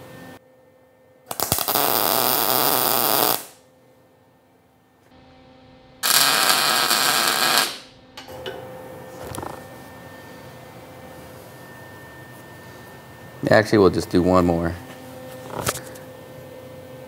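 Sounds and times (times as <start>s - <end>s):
crackling welding arc: 1.3s - 3.6s, 6.0s - 7.9s.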